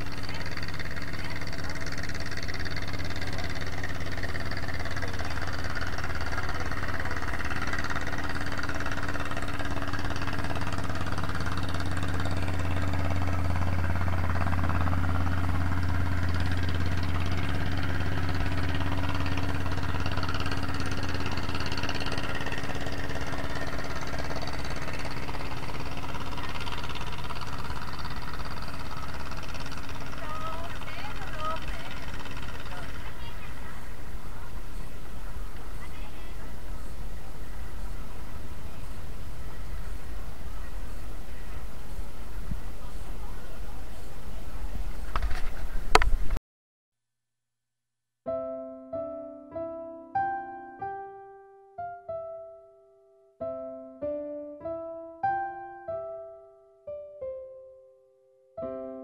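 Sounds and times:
engine running steadily: 0:00.0 - 0:46.4.

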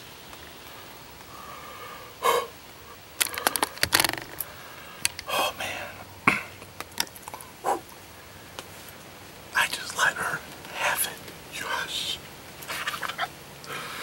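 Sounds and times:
breathy huffs: 0:01.3 - 0:02.6, 0:13.7 - 0:14.0
camera handling clicks and knocks: 0:03.2 - 0:04.4.

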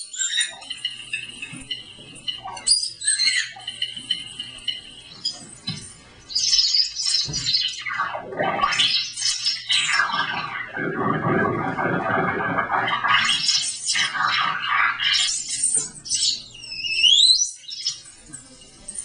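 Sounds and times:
electronic chirps and squawks: 0:00.0 - 0:05.5, 0:06.3 - 0:18.0
electronic pitch sweeps: 0:07.1 - 0:17.1.

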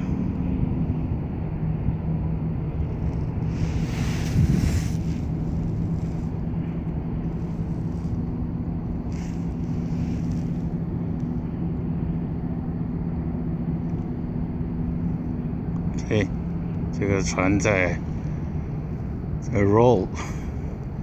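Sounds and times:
low hum and rumble: 0:00.0 - 0:21.0
small waves swishing against hull: 0:02.8 - 0:10.8.

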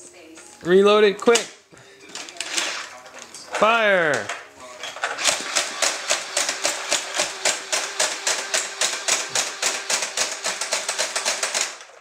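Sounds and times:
toy blaster plastic clacks: 0:05.0 - 0:11.9.

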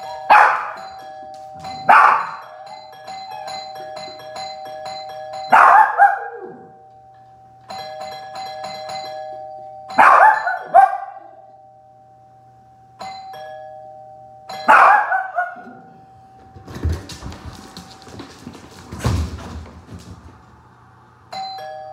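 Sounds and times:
two-tone doorbell chime: 0:00.0 - 0:18.4, 0:21.3 - 0:21.9
dog barking: 0:00.3 - 0:00.8, 0:01.9 - 0:02.4, 0:05.5 - 0:06.7, 0:09.9 - 0:11.4, 0:14.6 - 0:15.9.

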